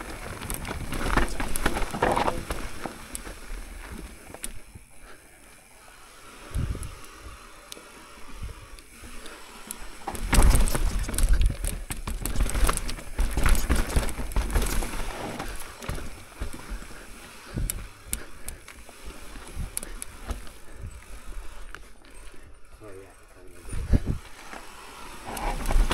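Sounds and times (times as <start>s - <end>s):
bike tyres clattering over rock: 0.0s - 5.2s, 9.2s - 22.2s, 23.5s - 25.9s
bike chain and frame rattling: 0.0s - 25.9s.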